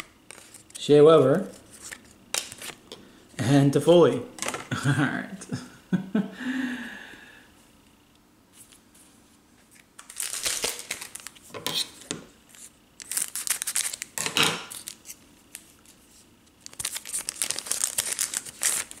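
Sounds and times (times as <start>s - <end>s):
wrapper crinkling: 10.0s - 11.5s, 13.0s - 15.8s, 16.6s - 19.0s.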